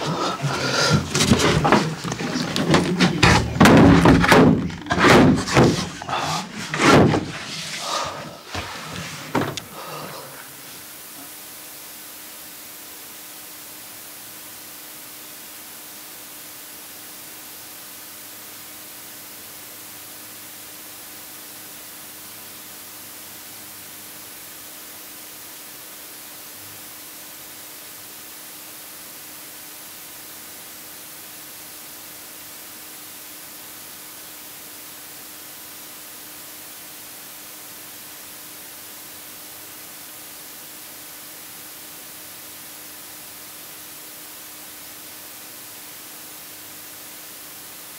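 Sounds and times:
faint hum: 0:00.0 - 0:47.9
steady hiss: 0:00.0 - 0:47.9.

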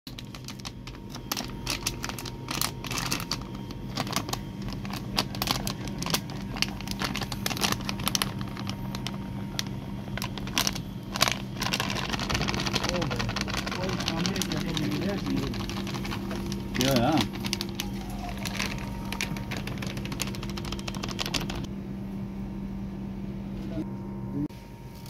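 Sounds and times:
plastic packets crinkling: 0:00.1 - 0:21.7
steady low hum: 0:00.1 - 0:25.0
powder shaken into plastic tub: 0:11.2 - 0:21.6.

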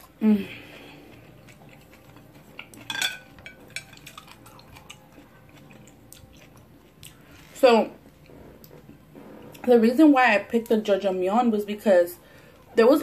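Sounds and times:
chopsticks clattering: 0:02.0 - 0:05.0.

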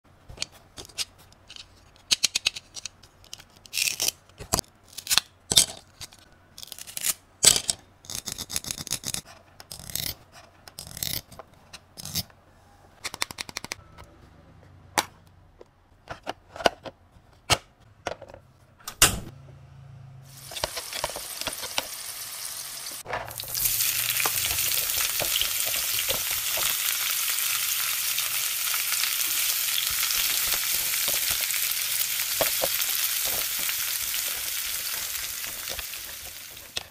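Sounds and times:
plastic toy pieces clicking: 0:01.4 - 0:10.1
frying sizzle: 0:20.3 - 0:36.9.

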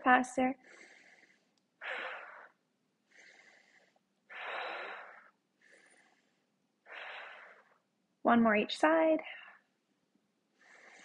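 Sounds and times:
woman inhaling faintly: 0:00.6 - 0:07.8.

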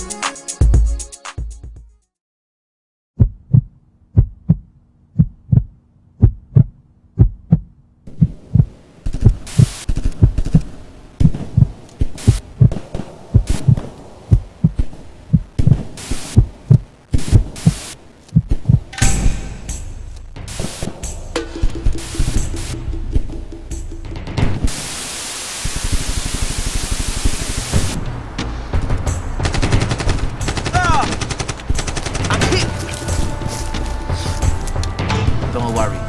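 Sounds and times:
heartbeat thumps: 0:03.2 - 0:10.6, 0:11.2 - 0:24.8
hiss: 0:09.5 - 0:10.0, 0:16.0 - 0:16.4, 0:17.1 - 0:18.0, 0:24.6 - 0:28.0
sharp noise bursts: 0:18.9 - 0:28.1.

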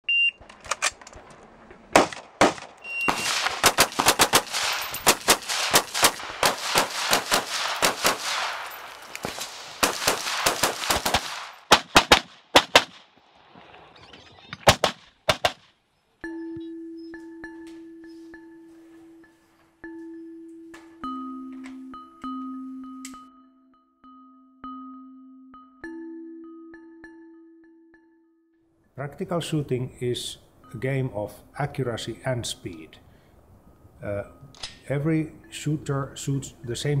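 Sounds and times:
rapid rifle fire: 0:02.0 - 0:13.0, 0:14.7 - 0:15.7.

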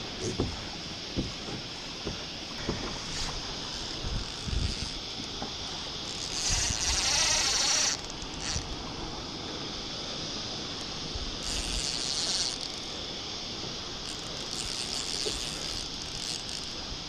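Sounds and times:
steady water hiss: 0:00.0 - 0:17.0
soft knocks: 0:00.2 - 0:00.6.

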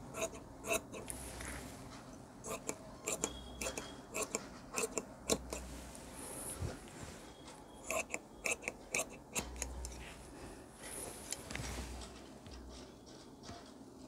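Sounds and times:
scissors snipping fabric: 0:02.5 - 0:05.6.

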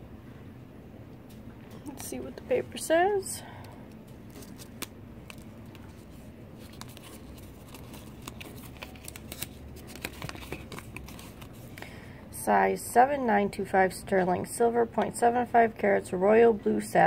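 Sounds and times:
paper crinkling: 0:04.0 - 0:11.8.

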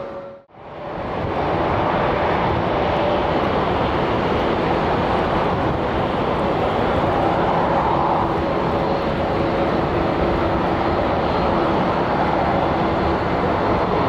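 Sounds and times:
jet engines running: 0:00.0 - 0:14.0.

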